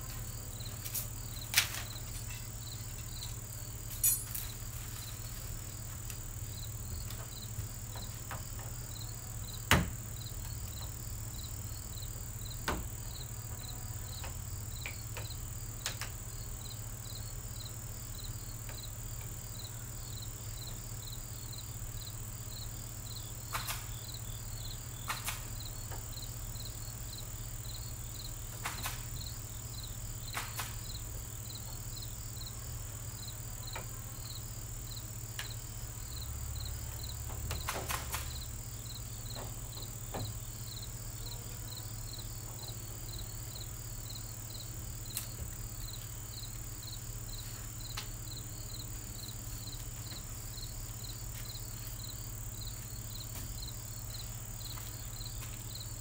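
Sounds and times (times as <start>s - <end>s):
crickets chirping: 0.0s - 56.0s
sharp knocks and clicks: 39.3s - 40.4s.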